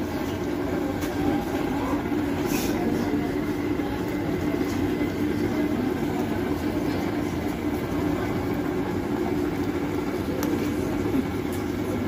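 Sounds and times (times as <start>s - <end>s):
induction cooktop humming drone: 0.0s - 12.0s
water at rolling boil: 0.0s - 12.0s.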